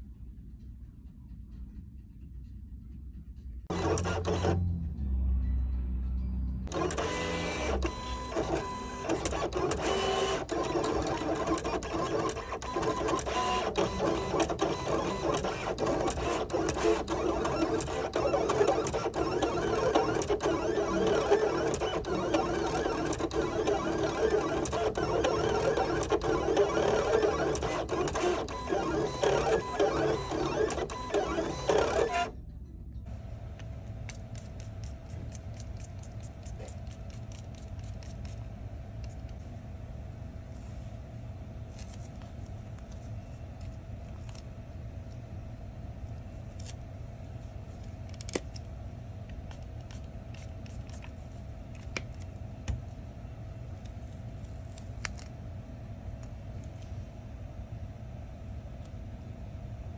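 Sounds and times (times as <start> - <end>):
steady hum with held tone: 0.0 - 59.9
cutting plotter running: 3.7 - 4.8, 6.7 - 32.3.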